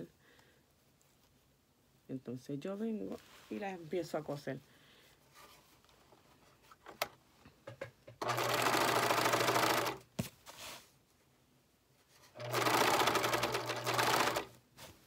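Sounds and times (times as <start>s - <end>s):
sewing machine stitching: 8.2s - 10.0s, 12.3s - 14.6s.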